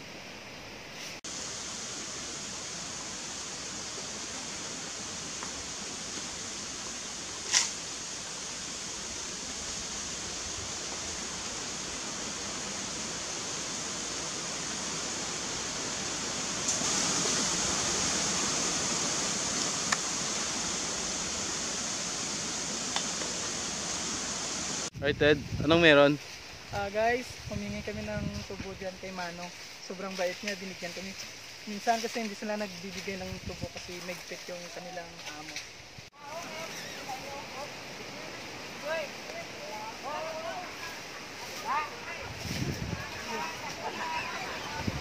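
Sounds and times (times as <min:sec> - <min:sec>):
creek water flowing: 0:00.0 - 0:25.0, 0:28.7 - 0:45.0
sharp snap: 0:07.5 - 0:07.8.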